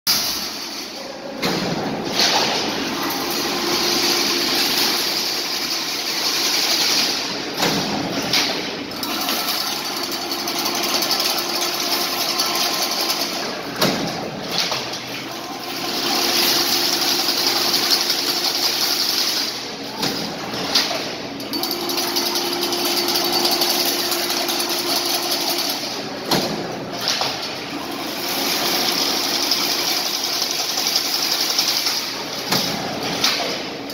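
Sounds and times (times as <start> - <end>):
machine knocking: 1.4 - 14.9, 21.5 - 33.6
machine humming: 1.8 - 19.8.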